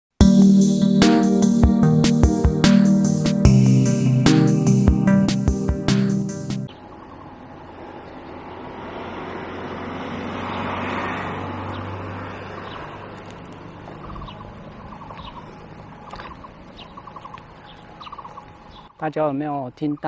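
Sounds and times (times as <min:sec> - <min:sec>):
car passing: 0:06.7 - 0:18.8
traffic: 0:06.7 - 0:19.0.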